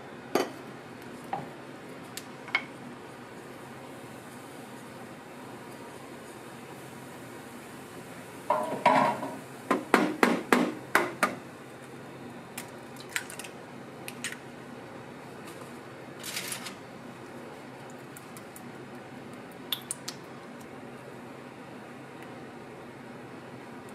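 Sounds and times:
steady background hiss: 0:00.0 - 0:12.8.

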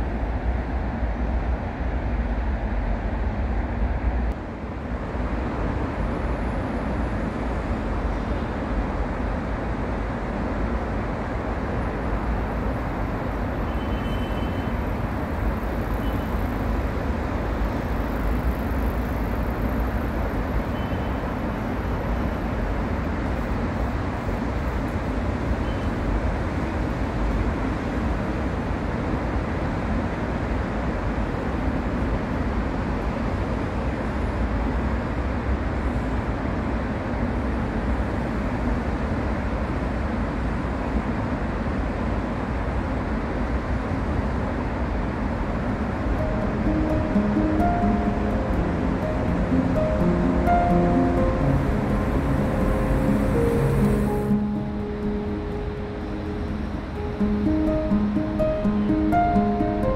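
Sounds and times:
distant road traffic rumble: 0:43.4 - 0:59.9.

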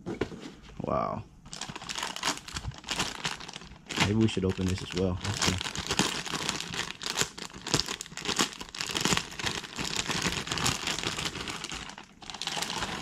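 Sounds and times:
plastic bag crinkling: 0:01.5 - 0:13.0.

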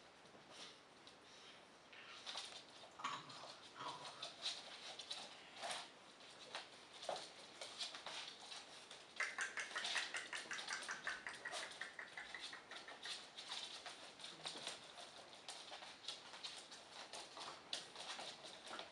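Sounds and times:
paws clicking on wooden floor: 0:02.2 - 0:18.9
puppy squeaks: 0:09.2 - 0:13.3.

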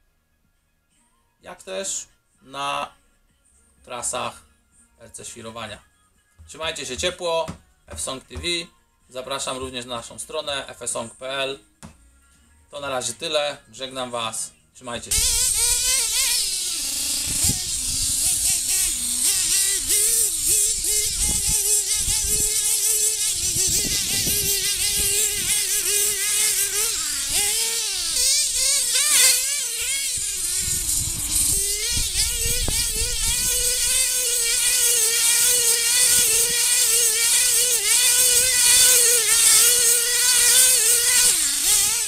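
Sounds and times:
small engine buzzing at high revs: 0:15.0 - 0:42.0.

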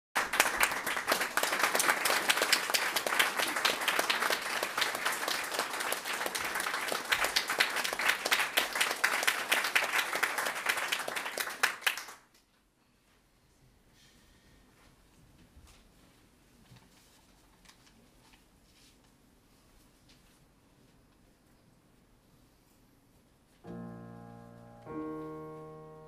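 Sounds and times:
audience applauding: 0:00.2 - 0:12.3.

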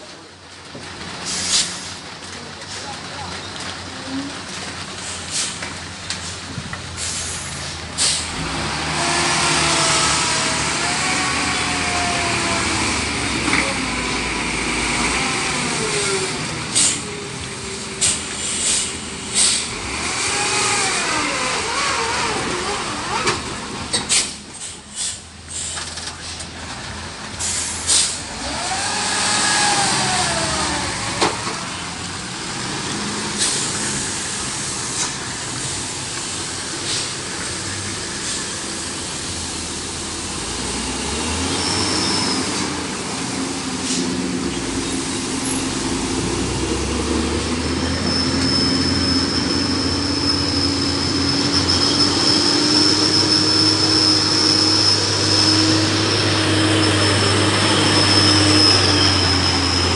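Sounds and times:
dump truck engine: 0:00.0 - 0:59.9
tanker truck diesel engine: 0:00.0 - 0:59.9
tyres on wet asphalt: 0:00.0 - 0:59.9
squeal: 0:47.8 - 0:59.9.

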